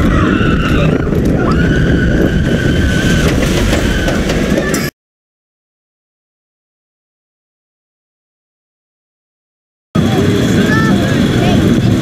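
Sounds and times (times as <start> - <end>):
high-pitched wheel squeal: 0.0 - 4.9
roller coaster rumbling on track: 0.0 - 4.9, 10.0 - 12.0.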